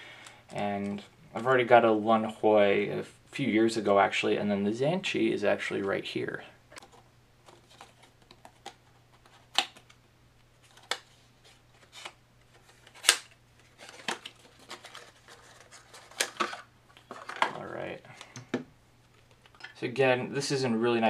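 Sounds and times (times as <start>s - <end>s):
crinkly packaging rustling: 6.8s - 18.4s
cardboard clicks and snaps: 9.5s - 10.0s, 12.9s - 14.4s.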